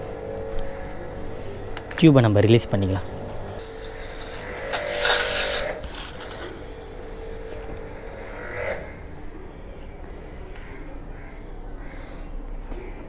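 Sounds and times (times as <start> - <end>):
pressure washer humming: 0.0 - 9.4.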